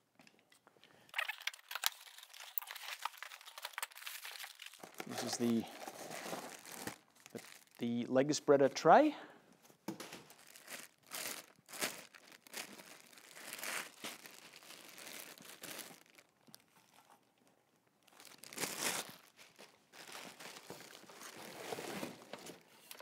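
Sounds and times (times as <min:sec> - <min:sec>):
plastic packaging crinkling: 0:01.0 - 0:08.0, 0:10.0 - 0:17.2, 0:18.0 - 0:23.0
bubble wrap handled: 0:01.1 - 0:08.0, 0:10.0 - 0:17.0, 0:18.0 - 0:23.0.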